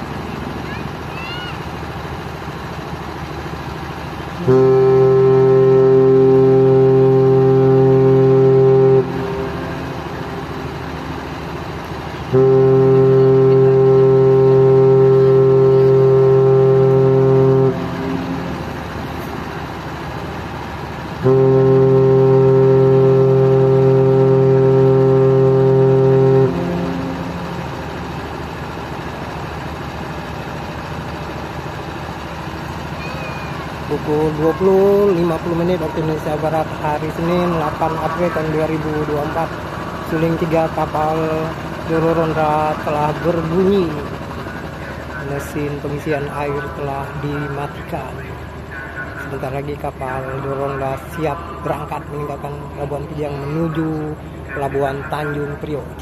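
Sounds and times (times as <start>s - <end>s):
steady hum: 2.2s - 33.0s, 33.6s - 56.0s
ship whistle blasts: 4.4s - 11.2s, 12.3s - 18.8s, 21.2s - 28.1s.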